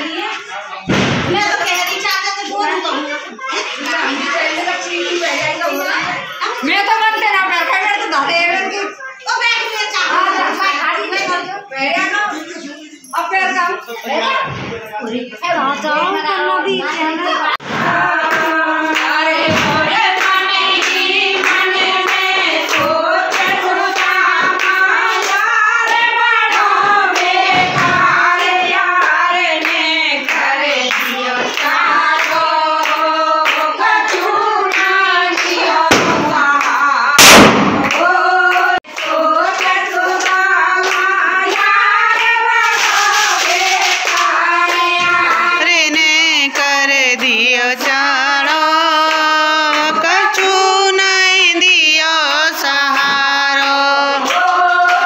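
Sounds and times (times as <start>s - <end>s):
women singing together: 0.0s - 55.0s
hand clapping: 17.8s - 51.0s, 54.2s - 55.0s
loud sharp burst: 37.2s - 38.0s.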